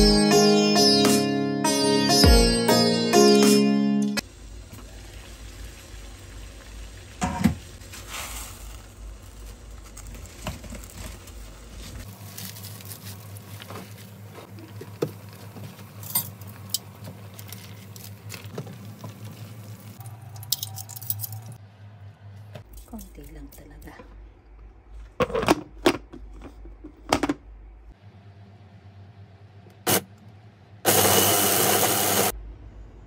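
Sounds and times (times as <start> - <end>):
water boiling in a saucepan: 4.2 - 20.0.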